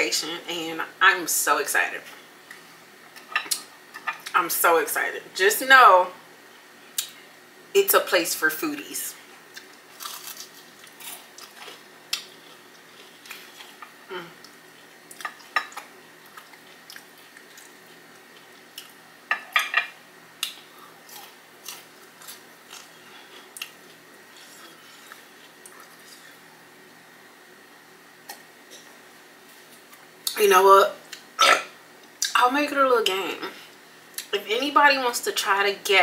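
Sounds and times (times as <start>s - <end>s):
crisp chewing crunches: 9.5s - 19.0s.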